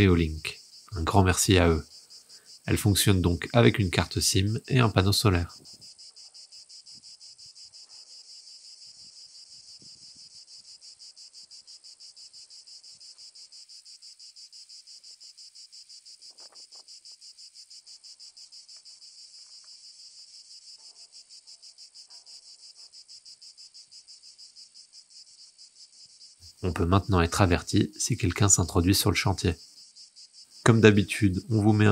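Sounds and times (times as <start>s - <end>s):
insects chirring: 0.0s - 31.9s.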